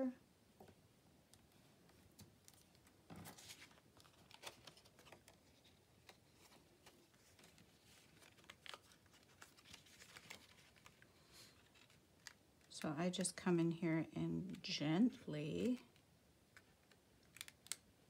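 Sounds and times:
paper clicking scraping and rustling: 2.5s - 12.4s.

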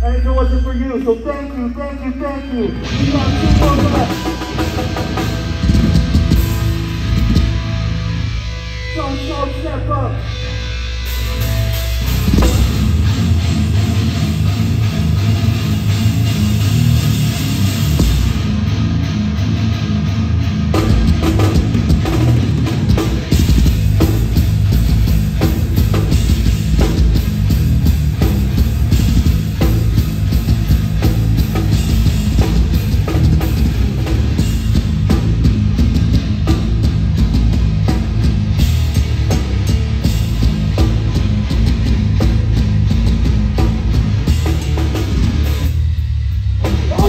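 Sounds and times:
punk band playing live: 0.0s - 47.0s.

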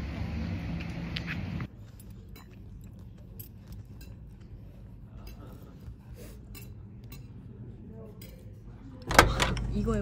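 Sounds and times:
cutlery clinking on dishes: 2.0s - 8.6s.

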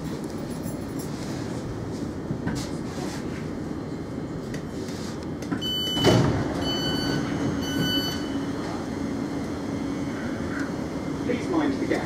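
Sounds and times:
sliding doors thumping shut: 5.6s - 6.8s.

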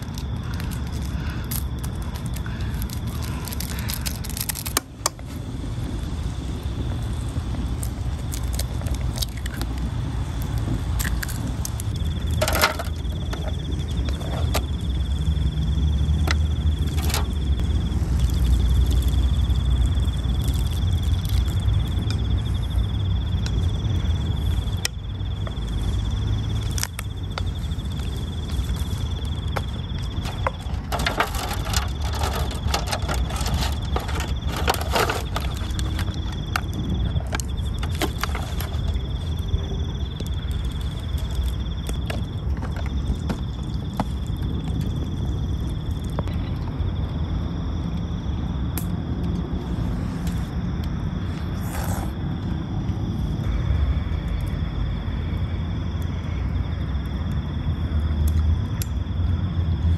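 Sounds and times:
insect trill: 0.0s - 59.9s
scrapes and clinks on foil: 30.8s - 36.0s.

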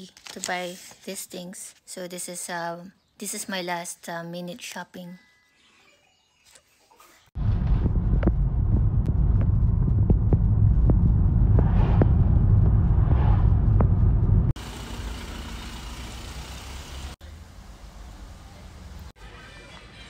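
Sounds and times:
road rumble in car: 7.4s - 19.2s.

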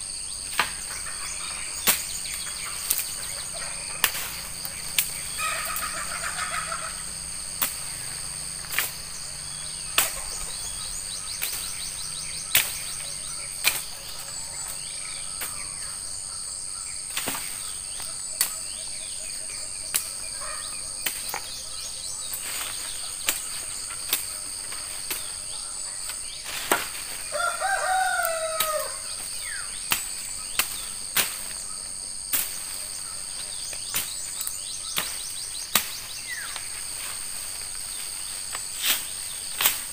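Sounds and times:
insects droning: 0.0s - 39.9s
machete chopping brush: 0.4s - 6.5s, 7.5s - 15.9s, 17.1s - 18.7s, 21.0s - 21.6s, 22.2s - 27.3s, 27.9s - 39.9s
rooster crowing: 5.3s - 7.3s, 27.2s - 29.2s.

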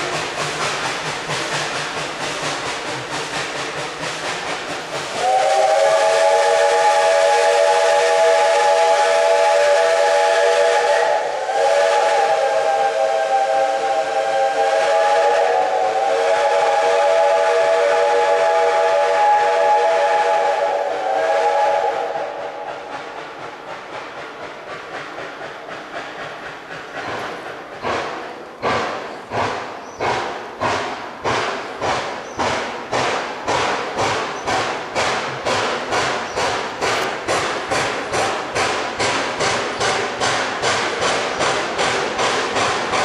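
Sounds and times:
train rolling noise: 0.0s - 43.0s
steam locomotive whistle: 5.1s - 23.0s.

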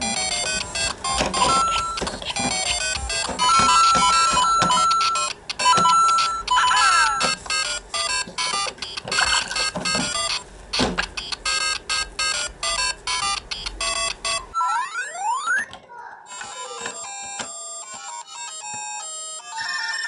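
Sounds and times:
electronic toy beeps: 0.0s - 17.4s
electronic pitch sweeps: 14.5s - 15.7s.

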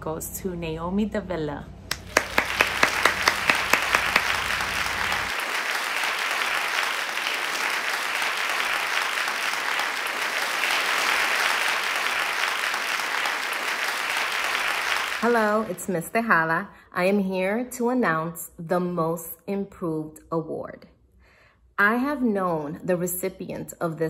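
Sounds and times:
sharp hand claps: 1.9s - 15.8s
crowd applause: 1.9s - 15.9s.

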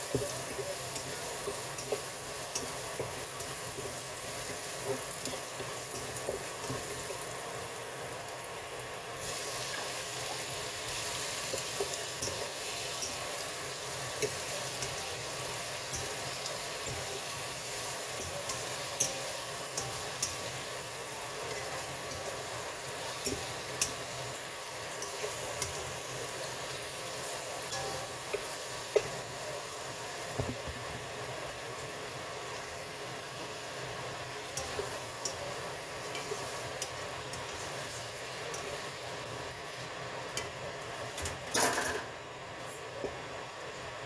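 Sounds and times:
garlic and shrimp sizzling in oil: 0.0s - 44.0s
spatula clicking on wok: 14.1s - 20.8s.

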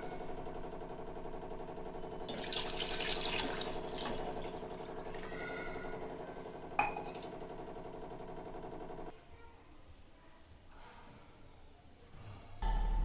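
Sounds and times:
water pouring into a steel pot: 2.3s - 5.4s.

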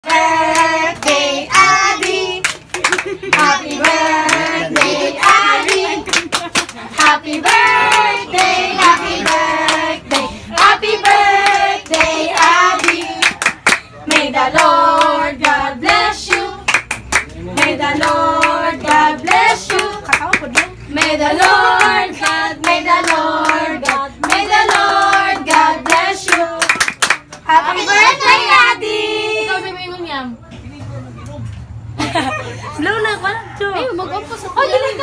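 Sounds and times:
group of voices singing together: 0.0s - 29.6s
hand clapping in time: 23.8s - 27.4s.

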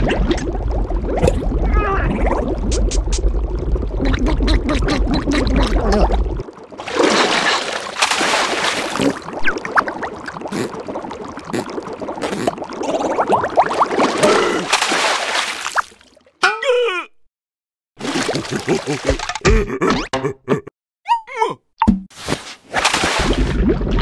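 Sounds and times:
bubbling gurgling water: 0.0s - 14.7s, 23.2s - 24.0s.

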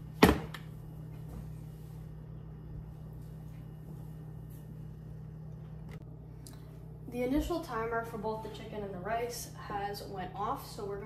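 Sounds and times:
kitchen room hum: 0.0s - 11.0s.

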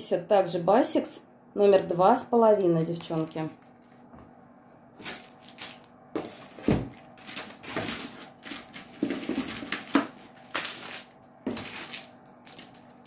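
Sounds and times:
plastic packaging crinkling: 3.0s - 4.1s, 5.0s - 13.0s.

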